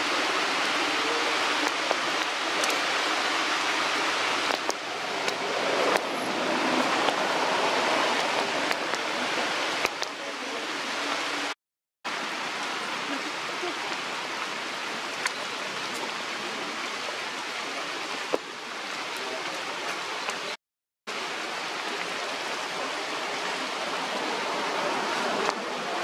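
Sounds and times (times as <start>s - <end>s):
outdoor rushing noise: 0.0s - 11.5s.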